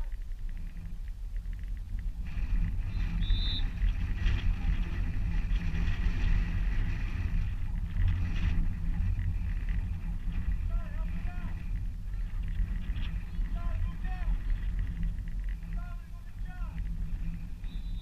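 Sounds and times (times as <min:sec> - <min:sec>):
crowd and field noise: 0:00.0 - 0:18.0
wind rumble on microphone: 0:00.0 - 0:18.0
high whistle blast: 0:03.2 - 0:03.7.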